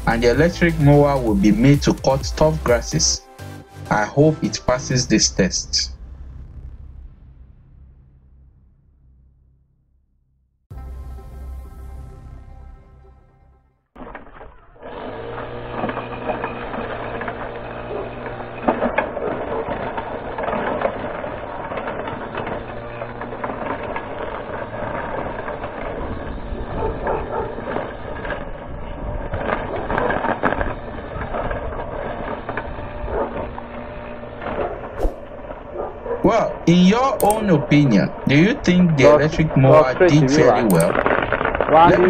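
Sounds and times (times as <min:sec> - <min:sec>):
electric mower motor humming: 0:14.0 - 0:42.0
trimmer line ticks and crackles: 0:15.4 - 0:34.8, 0:36.7 - 0:39.5, 0:40.4 - 0:42.0.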